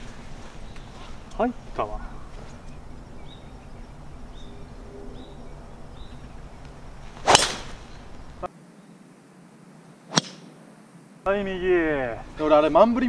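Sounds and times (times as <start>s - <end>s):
golf club striking ball: 7.2s - 8.3s, 10.1s - 10.5s.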